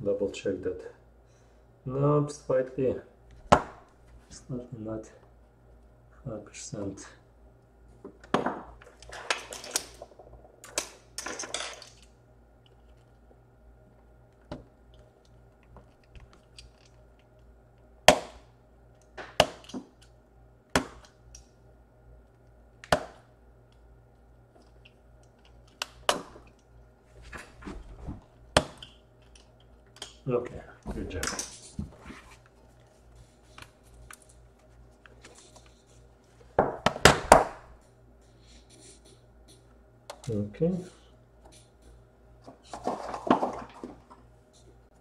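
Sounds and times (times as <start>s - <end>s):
faint steady hum: 0.0s - 45.0s
scraping and handling: 30.8s - 36.6s, 42.4s - 44.8s.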